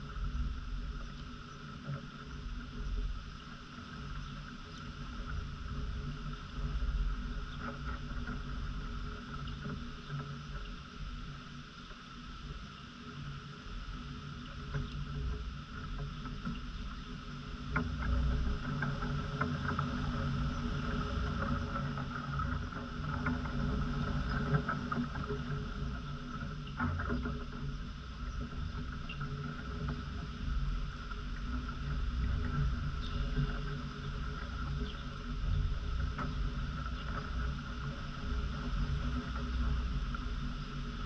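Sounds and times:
steady high hum: 0:00.0 - 0:41.0.

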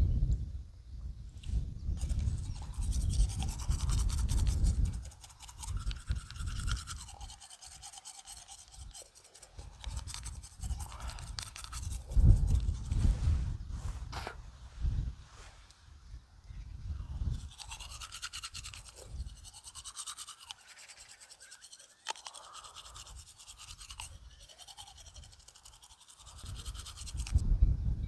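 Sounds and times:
fast scrubbing strokes: 0:02.0 - 0:13.5, 0:17.2 - 0:27.4.

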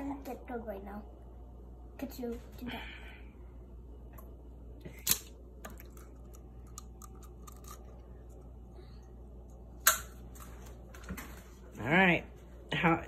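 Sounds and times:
eggshell crackling: 0:04.9 - 0:08.6.

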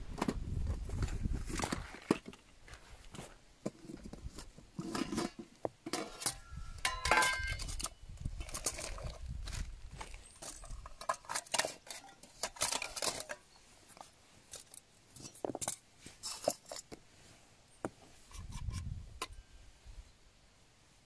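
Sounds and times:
metal pots clinking and scraping: 0:03.6 - 0:09.2, 0:10.0 - 0:17.0, 0:18.2 - 0:19.5.

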